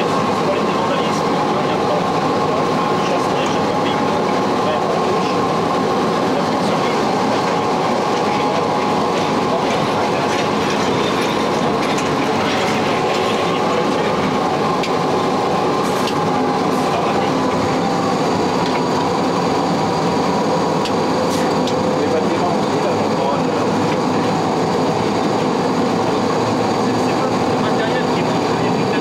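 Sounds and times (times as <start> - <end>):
train wheels clattering over rails: 0.0 - 19.6.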